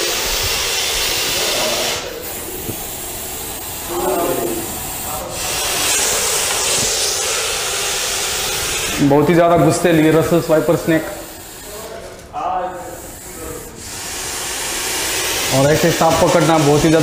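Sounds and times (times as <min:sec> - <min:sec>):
snake hissing: 0:00.0 - 0:09.3, 0:12.8 - 0:17.0.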